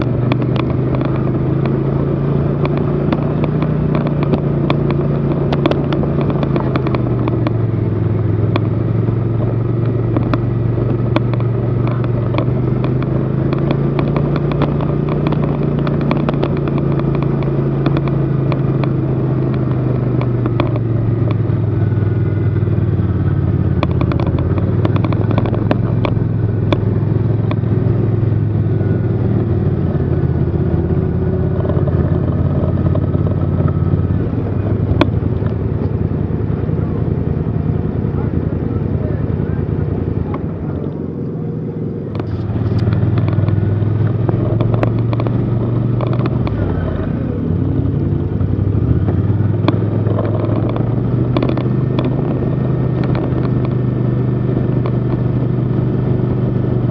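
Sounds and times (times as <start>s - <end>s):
sharp clicks and ticks: 0.0s - 56.9s
snowmobile engine running: 0.0s - 56.9s.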